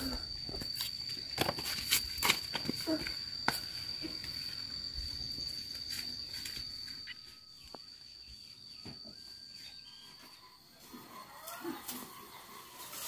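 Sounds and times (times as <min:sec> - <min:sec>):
cricket trilling: 0:00.0 - 0:13.0.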